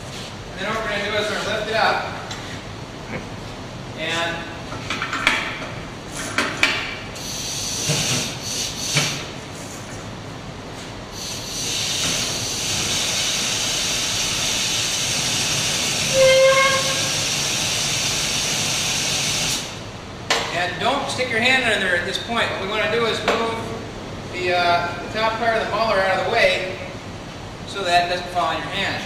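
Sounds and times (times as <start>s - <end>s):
steady hiss: 7.2s - 9.7s, 11.1s - 19.8s.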